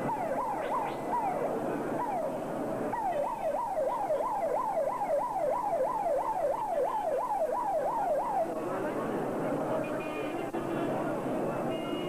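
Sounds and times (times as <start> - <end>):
siren yelping: 0.0 - 8.6
large crowd noise: 0.0 - 12.0.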